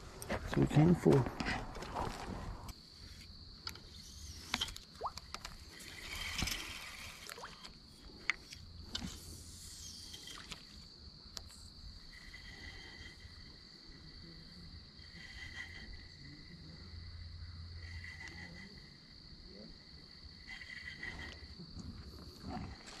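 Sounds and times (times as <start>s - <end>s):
high insect trill: 0.0s - 23.0s
lower insect trill: 0.0s - 23.0s.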